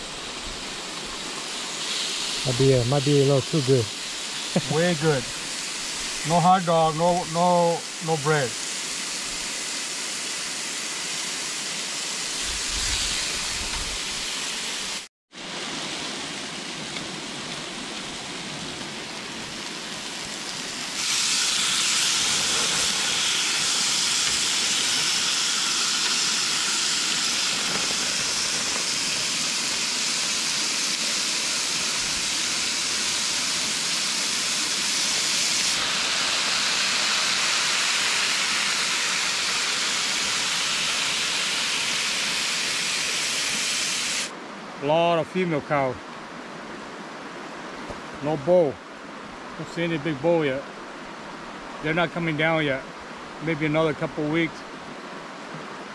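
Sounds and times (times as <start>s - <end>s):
meat sizzling on grill: 0.0s - 44.3s.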